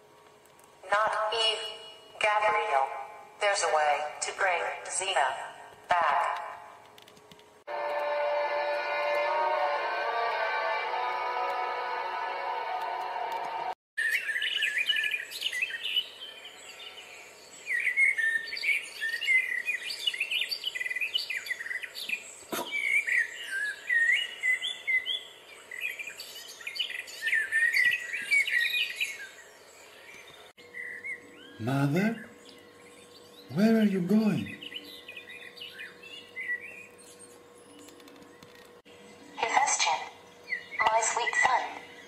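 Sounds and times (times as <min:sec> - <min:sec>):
music: 0:07.7 - 0:13.8
faint outdoor hiss: 0:14.0 - 0:38.0
songbirds chirping and trilling: 0:14.0 - 0:39.4, 0:40.0 - 0:42.0.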